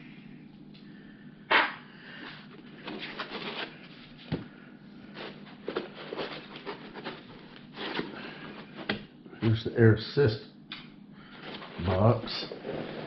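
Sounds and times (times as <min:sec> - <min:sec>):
packing foam scraping and rustling: 0:02.8 - 0:04.1, 0:05.1 - 0:08.8, 0:11.4 - 0:13.0.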